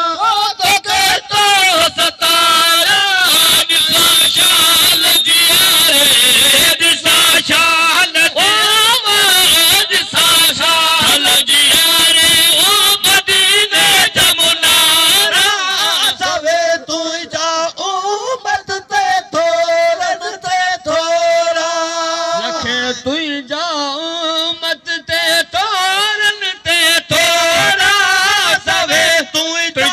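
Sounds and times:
man singing devotional verse: 0.0s - 29.9s.

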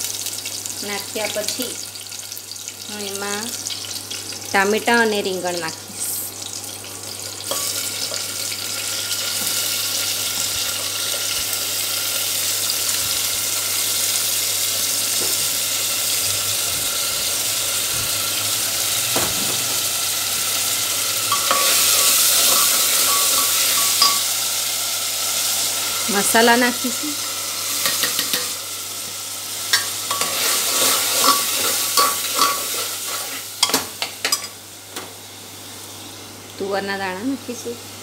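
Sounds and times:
vegetables sizzling in hot oil: 0.0s - 38.0s
ladle stirring a pot: 29.7s - 33.4s.

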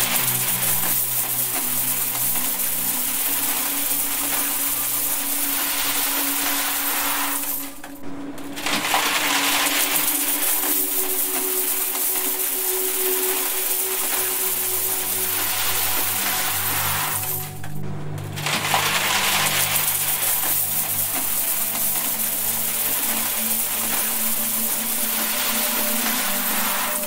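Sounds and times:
coins pouring into metal box: 0.0s - 7.8s, 8.6s - 17.6s, 18.4s - 27.0s
steady low hum: 12.6s - 26.8s.

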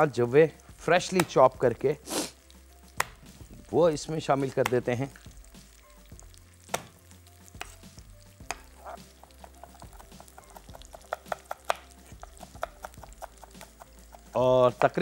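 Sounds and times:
knife chopping on wooden board: 6.7s - 7.0s, 8.4s - 15.0s.

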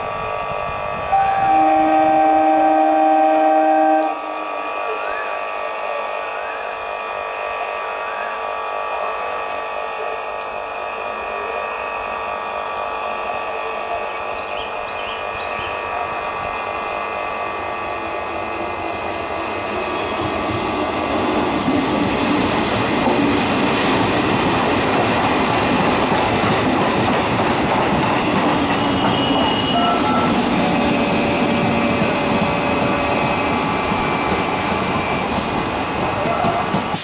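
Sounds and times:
train wheels rumbling on rail: 0.0s - 37.0s
train wheels squealing: 28.0s - 31.2s, 32.6s - 36.6s.

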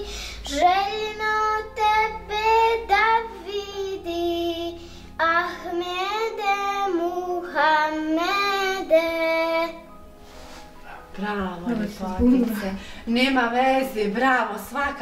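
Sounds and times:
girl singing a hymn: 0.0s - 10.0s.

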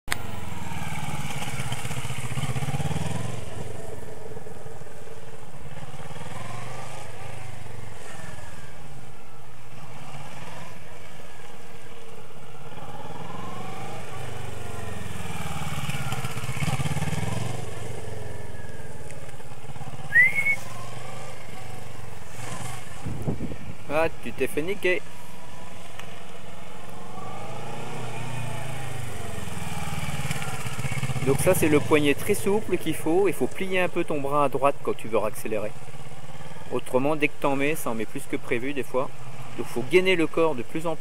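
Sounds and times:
motorcycle engine revving: 0.1s - 34.1s, 39.1s - 40.0s.

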